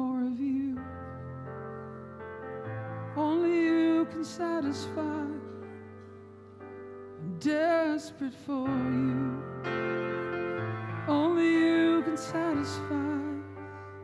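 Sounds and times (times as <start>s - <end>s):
man singing worship song: 0.0s - 0.9s, 3.2s - 5.7s, 7.2s - 9.6s, 11.0s - 13.8s.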